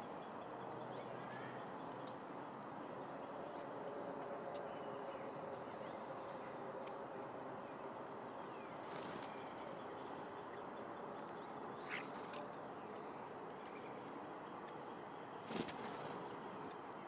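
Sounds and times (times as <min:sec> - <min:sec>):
steady outdoor hiss: 0:00.0 - 0:17.0
wings fluttering: 0:15.4 - 0:16.3.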